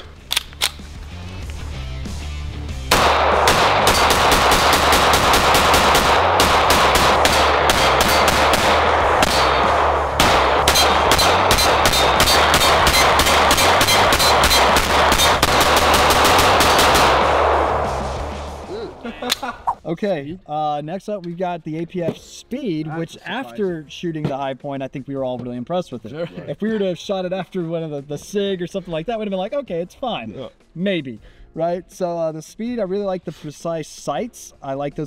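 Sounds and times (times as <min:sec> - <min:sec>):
pistol shots: 0:02.9 - 0:18.0.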